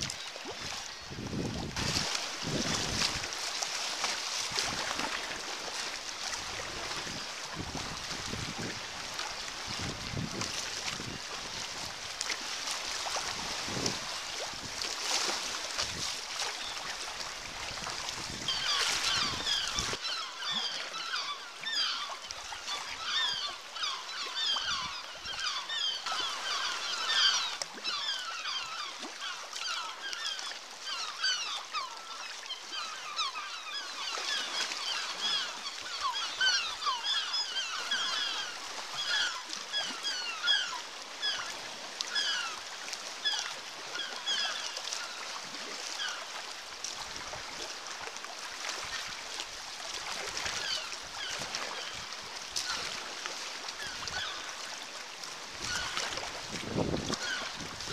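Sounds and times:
water rushing: 0.0 - 57.9
wind: 0.0 - 57.9
seabirds calling: 18.3 - 46.4, 50.2 - 57.9.

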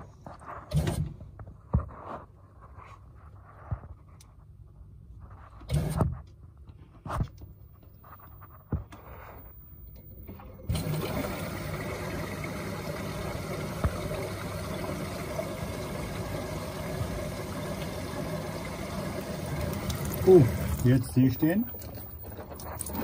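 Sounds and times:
water filling washing machine: 10.3 - 23.0.

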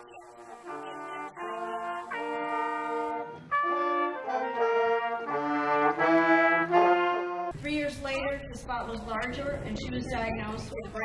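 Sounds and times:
wind band playing: 0.0 - 7.5.

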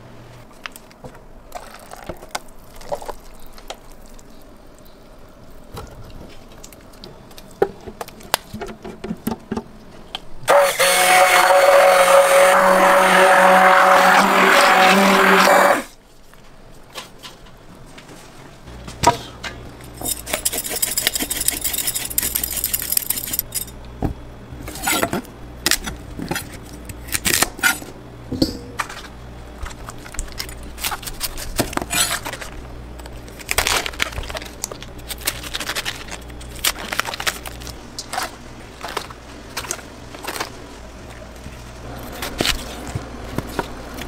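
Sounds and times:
steady low hum: 17.5 - 44.0.

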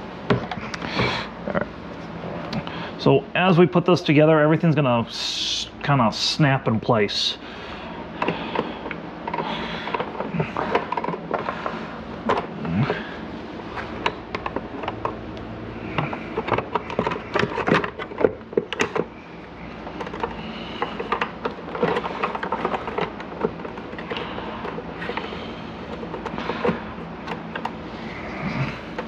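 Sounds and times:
plastic parts snapping together: 16.0 - 19.1.

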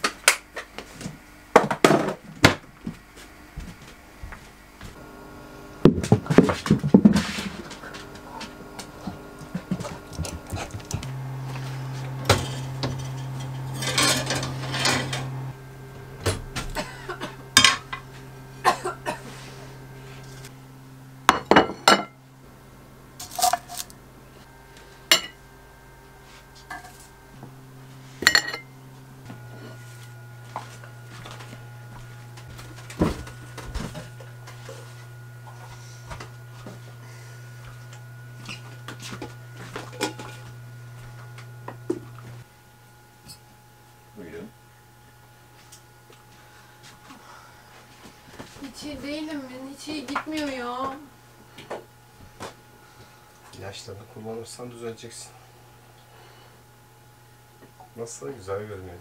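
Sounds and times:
steady low hum: 0.2 - 59.0
pots pans and cutlery clinking: 39.8 - 40.4.

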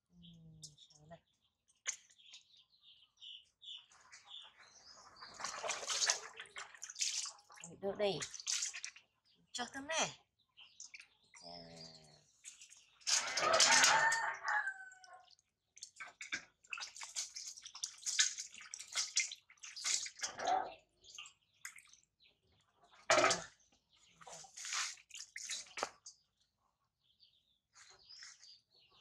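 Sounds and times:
water splashing in metal bowl: 5.2 - 9.2, 10.7 - 11.4, 12.3 - 20.4, 21.0 - 22.1, 22.9 - 23.6, 24.2 - 26.1.

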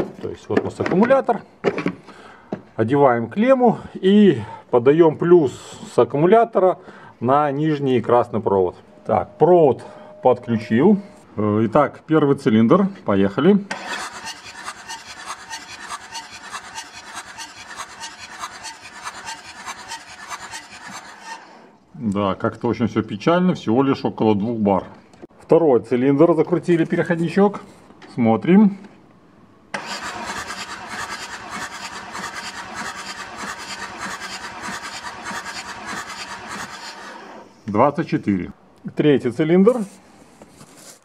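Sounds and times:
diesel engine cranking on starter: 13.7 - 21.7, 29.7 - 37.5.

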